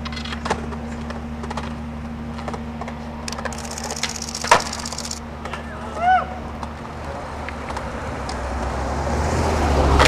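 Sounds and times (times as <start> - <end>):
skateboard clack: 0.0 - 1.8, 2.4 - 5.7
skateboard wheels clicking over joints: 0.0 - 5.7, 6.6 - 8.4
skateboard rolling on concrete: 0.0 - 5.8, 6.4 - 10.0
steady low hum: 0.0 - 8.5.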